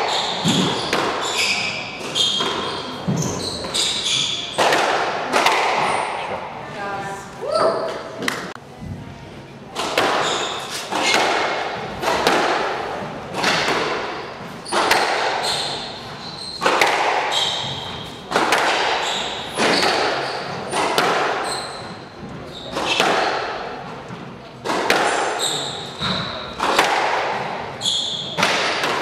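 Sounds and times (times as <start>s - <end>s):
shoe squeaks on floor: 0.0s - 4.6s, 10.2s - 11.2s, 14.2s - 18.2s, 18.9s - 20.8s, 21.4s - 23.0s, 25.1s - 26.6s, 27.8s - 28.5s
racket striking ball: 0.0s - 6.2s, 9.7s - 16.0s, 16.6s - 22.0s, 22.7s - 23.7s, 24.6s - 29.0s
ball hitting court walls: 0.0s - 6.4s, 9.7s - 23.9s, 24.6s - 29.0s.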